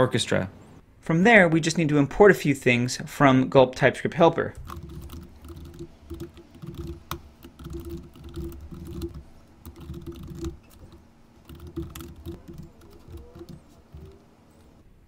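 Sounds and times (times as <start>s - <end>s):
computer keyboard typing: 4.6s - 14.8s.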